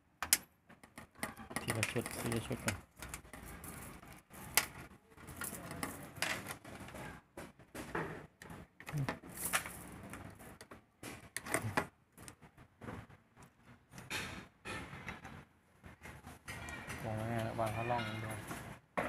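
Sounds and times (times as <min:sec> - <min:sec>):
plastic connectors clicking: 0:00.2 - 0:06.7.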